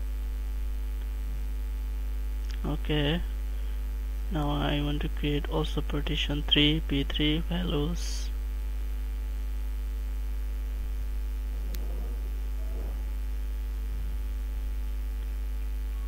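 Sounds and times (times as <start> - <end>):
electrical mains hum: 0.0 - 16.0
faint high tones: 15.6 - 16.0.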